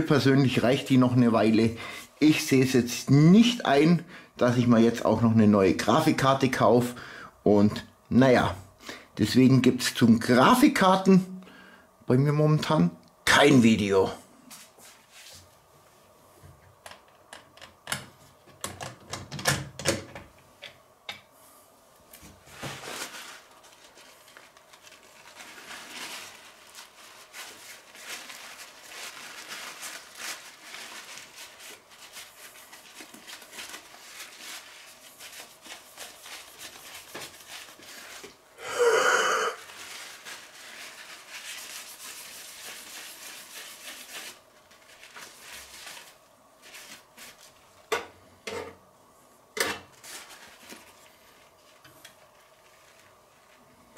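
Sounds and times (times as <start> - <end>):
cloth rubbing and scratching: 14.5 - 15.6, 22.4 - 38.3, 39.6 - 47.6
loud short rustle: 22.3 - 38.2.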